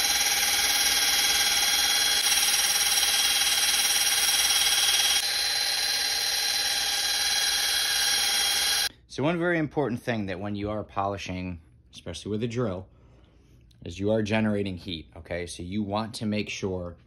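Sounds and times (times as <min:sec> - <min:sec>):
drill motor whine: 0:00.0 - 0:08.9.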